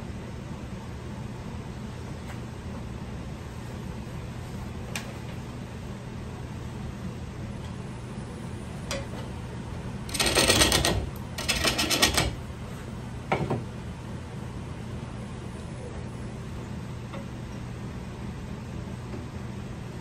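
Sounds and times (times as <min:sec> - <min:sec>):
steady low hum: 0:00.0 - 0:20.0
lathe tool clattering on wood: 0:10.1 - 0:12.4.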